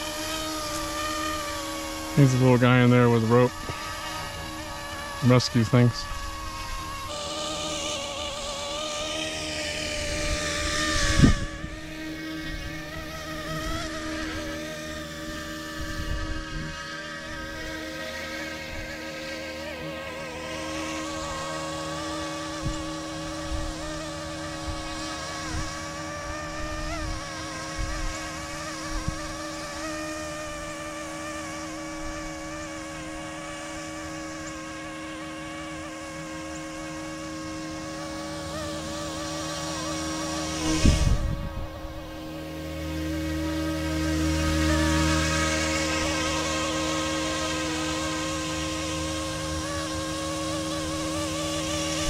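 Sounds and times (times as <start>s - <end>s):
model helicopter rotors whining: 0.0s - 52.0s
wind buffet on microphone: 8.7s - 17.8s, 22.3s - 32.9s, 40.3s - 43.8s.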